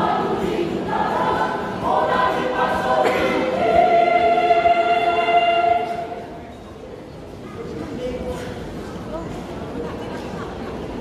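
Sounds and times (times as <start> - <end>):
choir singing unaccompanied: 0.0 - 6.4.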